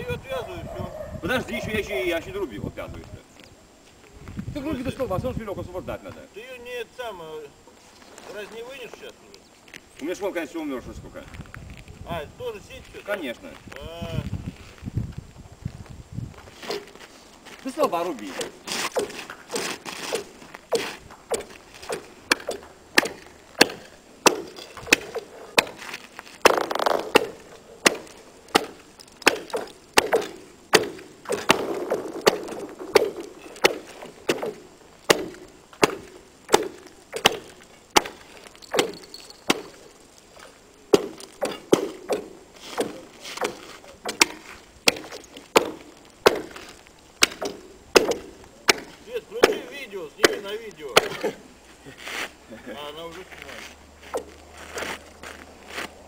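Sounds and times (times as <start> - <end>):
axe chopping into ice: 18.4 - 25.9, 26.5 - 38.2.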